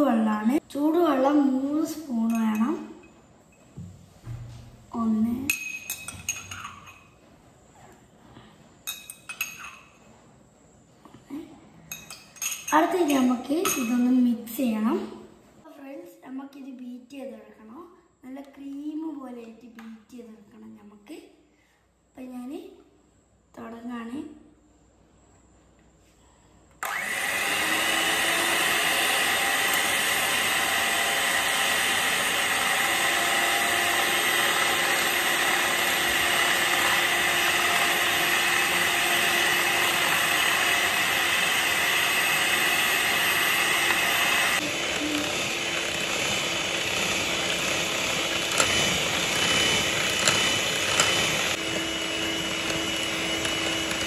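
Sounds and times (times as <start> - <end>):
electric hand mixer running: 26.8 - 54.0.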